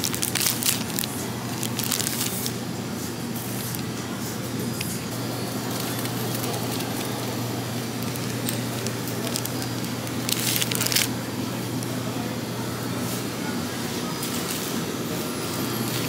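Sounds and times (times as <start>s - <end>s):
plastic wrapping crinkling: 0.0s - 2.6s, 3.2s - 11.2s
steady low hum: 0.0s - 16.0s.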